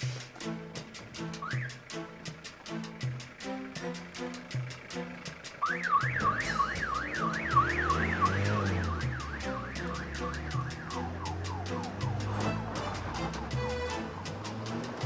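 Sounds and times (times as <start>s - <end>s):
background music with beat: 0.0s - 15.0s
police siren wailing: 5.6s - 14.1s.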